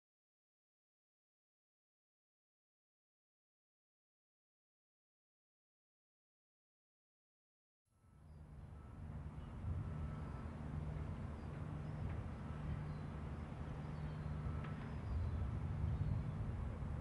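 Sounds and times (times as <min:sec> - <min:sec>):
steady low rumble: 0:08.4 - 0:17.0.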